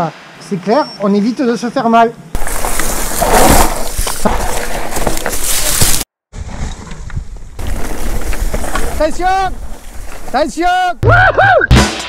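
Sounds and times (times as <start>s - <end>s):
bike knocks and rattles: 2.4s - 6.0s
bike rolling over dirt trail: 2.4s - 10.9s.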